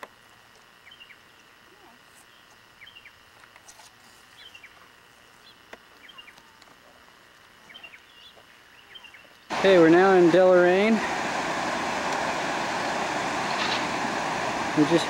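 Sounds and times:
faint steady hiss: 0.0 - 15.0
bird chirping: 0.8 - 1.6, 2.3 - 3.2, 4.4 - 4.8, 7.6 - 9.5.

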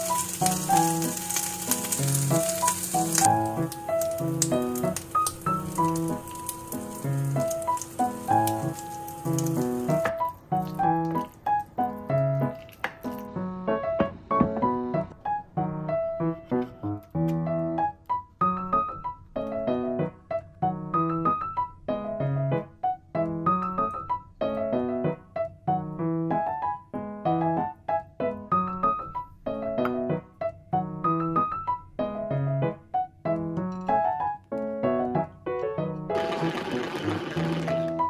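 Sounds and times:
piano music: 0.0 - 38.0.

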